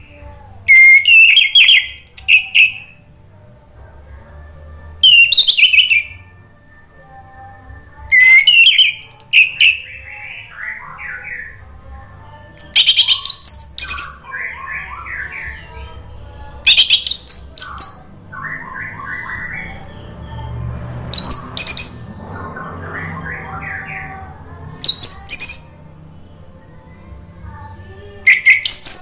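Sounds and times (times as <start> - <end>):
thrush singing: 0.0 - 29.0.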